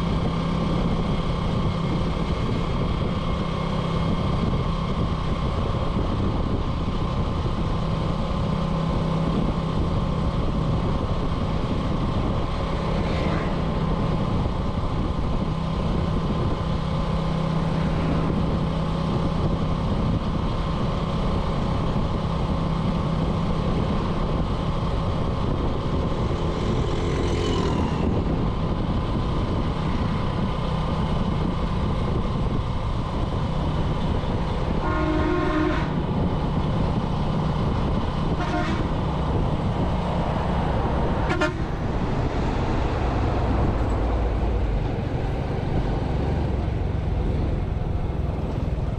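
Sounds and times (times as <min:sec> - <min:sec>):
road and wind noise: 0:00.0 - 0:48.9
motorbike horn: 0:34.8 - 0:36.0, 0:38.4 - 0:39.0, 0:41.2 - 0:41.7.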